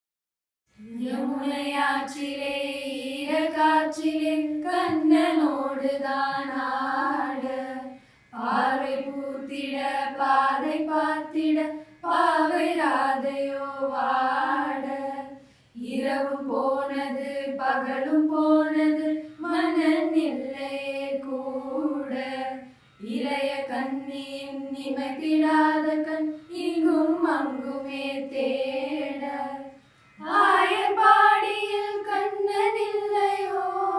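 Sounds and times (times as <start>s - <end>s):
girls singing together: 0.8s - 33.9s.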